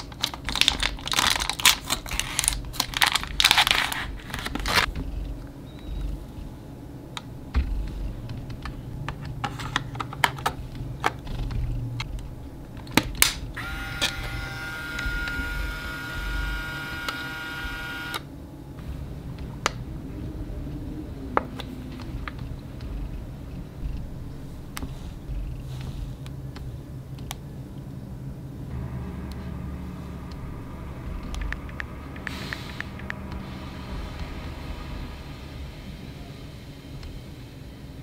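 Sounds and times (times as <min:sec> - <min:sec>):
printer motor whine: 0:13.6 - 0:18.3.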